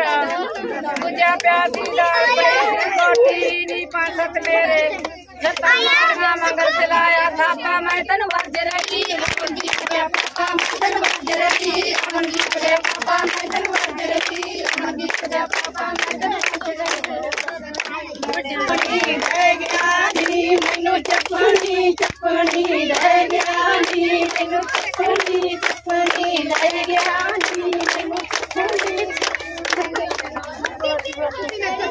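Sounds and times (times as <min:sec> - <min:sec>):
rhythmic hand claps: 0:00.0 - 0:31.9
women singing together: 0:00.0 - 0:31.9.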